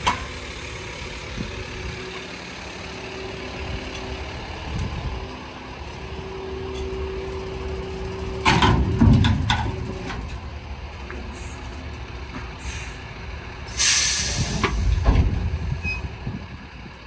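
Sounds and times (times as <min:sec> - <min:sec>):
truck engine humming: 0:00.0 - 0:17.0
hydraulics lowering: 0:03.2 - 0:16.4
metal bin clanking and thudding: 0:08.4 - 0:10.3.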